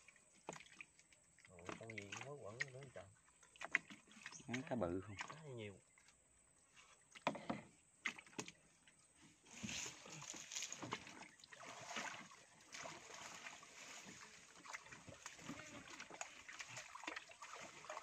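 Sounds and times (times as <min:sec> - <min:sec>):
water splashing and sloshing: 0:00.0 - 0:18.0.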